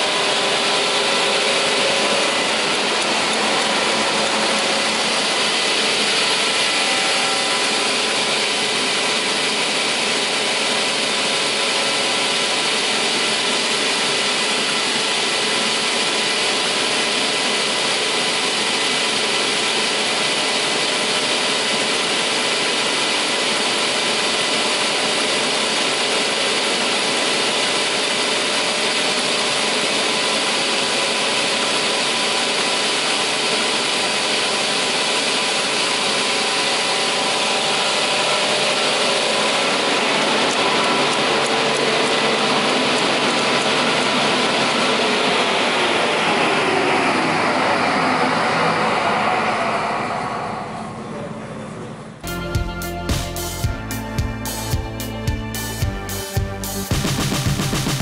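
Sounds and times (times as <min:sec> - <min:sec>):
saw blades spinning: 0:00.0 - 0:15.7.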